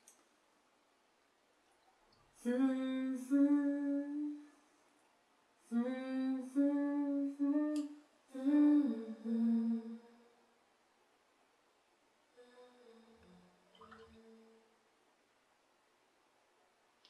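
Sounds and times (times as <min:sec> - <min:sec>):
woman humming a slow tune: 0:02.4 - 0:04.5, 0:05.7 - 0:10.4, 0:12.4 - 0:14.8.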